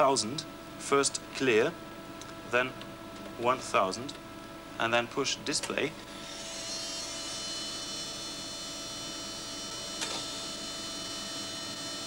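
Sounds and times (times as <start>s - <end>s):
tape machine mechanical whine: 4.8s - 12.0s.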